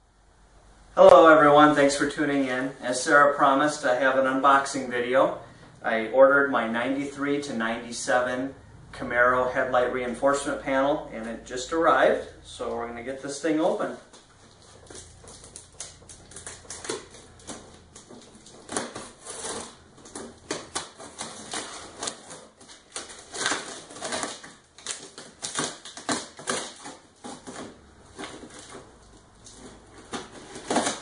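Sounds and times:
cardboard scraping: 0:13.0 - 0:31.0
packing tape tearing: 0:14.1 - 0:31.0.

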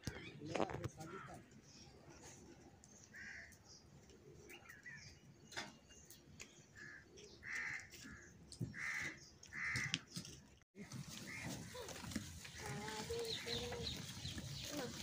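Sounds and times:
crow cawing: 0:06.8 - 0:10.0.

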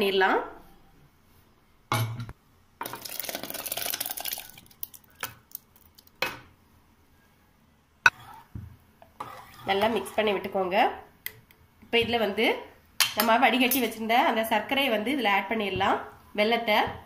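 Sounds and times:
spoon scraping pan: 0:08.1 - 0:10.5.

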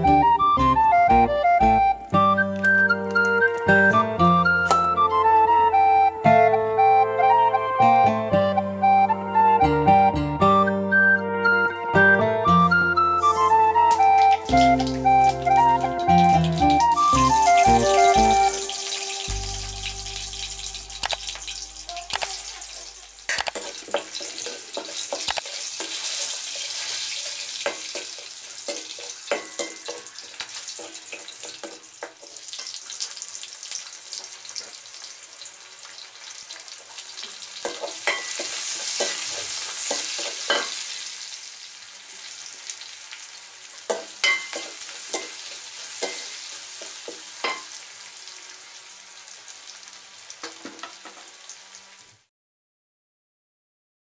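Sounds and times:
onions sizzling in hot oil: 0:13.2 - 0:52.3
ladle scraping and knocking wok: 0:21.0 - 0:32.8.

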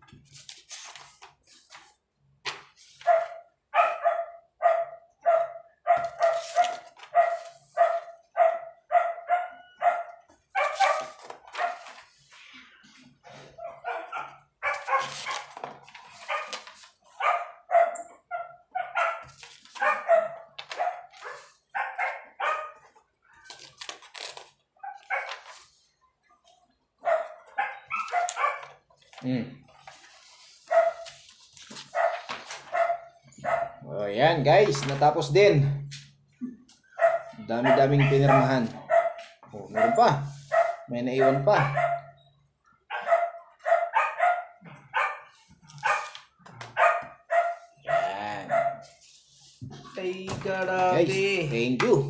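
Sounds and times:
dog barking: 0:03.0 - 0:11.9, 0:13.5 - 0:15.6, 0:16.3 - 0:22.9, 0:24.8 - 0:25.4, 0:27.0 - 0:28.8, 0:30.7 - 0:31.2, 0:31.9 - 0:33.9, 0:37.0 - 0:42.3, 0:42.9 - 0:48.9.

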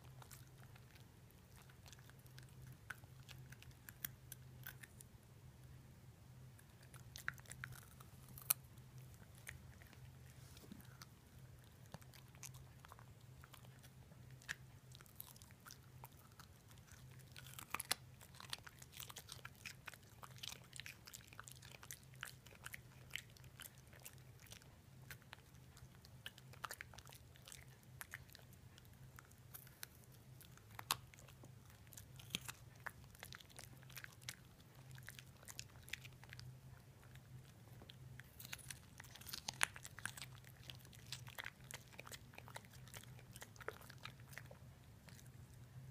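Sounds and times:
puppy crunching carrot: 0:00.0 - 0:05.1, 0:06.6 - 0:45.9
steady low hum: 0:00.0 - 0:45.9.

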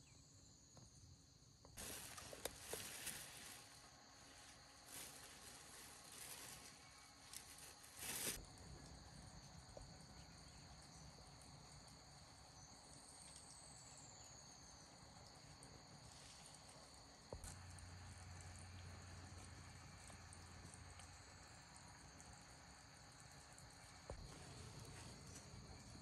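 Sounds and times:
insects chirring: 0:00.0 - 0:26.0
soft rustles: 0:01.8 - 0:08.4.

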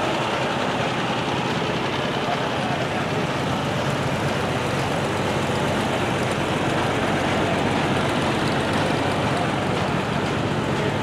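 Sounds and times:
tractor engine driving past: 0:00.0 - 0:11.0.

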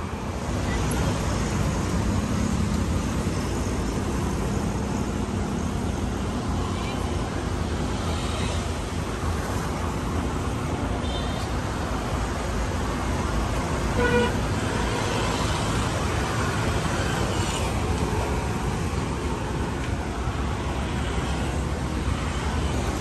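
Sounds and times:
road traffic noise: 0:00.0 - 0:23.0
vehicle horn toot: 0:14.0 - 0:14.4.

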